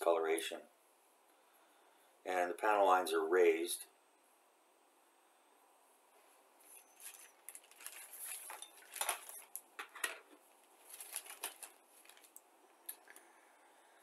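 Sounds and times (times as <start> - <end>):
plastic bag crinkling: 6.6 - 13.2.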